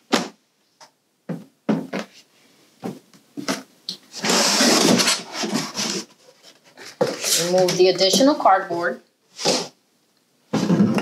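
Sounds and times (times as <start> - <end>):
cardboard scraping and rustling: 4.1 - 7.8.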